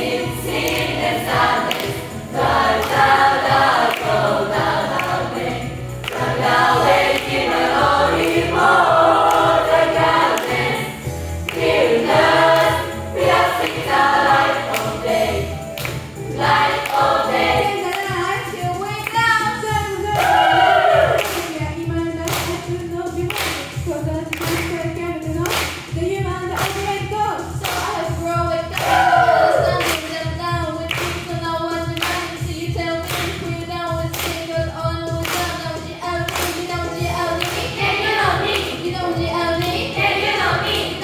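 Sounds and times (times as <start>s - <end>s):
choir singing a cappella: 0.0s - 18.2s, 20.1s - 21.2s, 27.3s - 30.2s, 35.6s - 41.0s
hand clapping: 0.5s - 19.2s, 21.2s - 21.6s, 22.3s - 27.0s, 27.6s - 28.2s, 28.8s - 32.4s, 33.0s - 33.5s, 34.1s - 38.9s, 39.6s - 40.4s.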